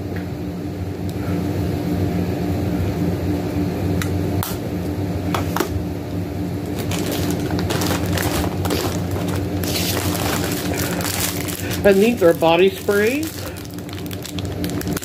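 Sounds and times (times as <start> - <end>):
low machine hum: 0.0 - 15.0
packaged items clicking and rustling: 6.7 - 15.0.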